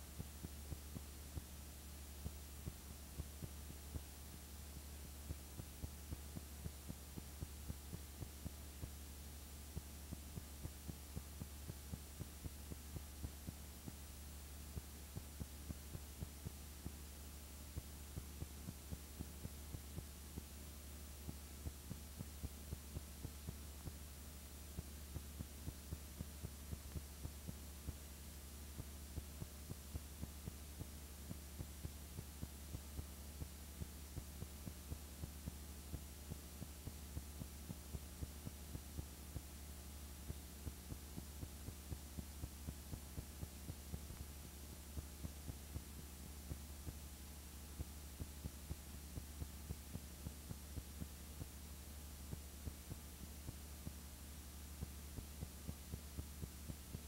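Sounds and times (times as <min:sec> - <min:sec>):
faint low hum: 0:00.0 - 0:57.0
soft regular clicks: 0:00.2 - 0:39.6.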